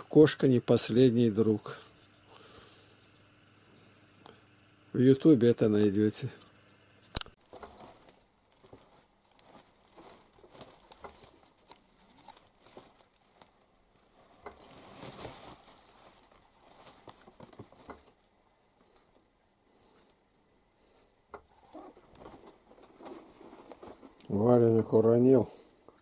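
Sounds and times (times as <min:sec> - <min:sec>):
kitten scrabbling over plastic sacks: 0:07.4 - 0:18.2.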